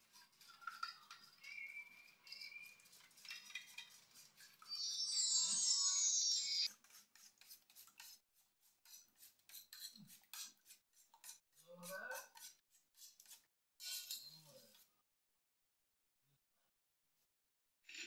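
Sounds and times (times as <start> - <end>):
spoon beating eggs in metal bowl: 0.0 - 5.1, 6.6 - 14.8.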